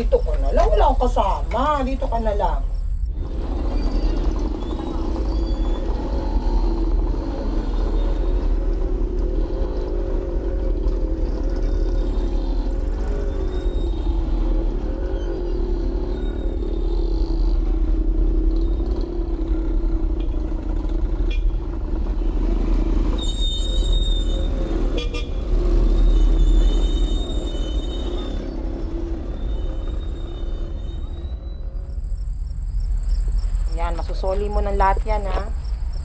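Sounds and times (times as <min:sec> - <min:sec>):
vehicles running: 0:00.0 - 0:36.0
car horns tooting: 0:21.2 - 0:21.6, 0:23.2 - 0:28.5.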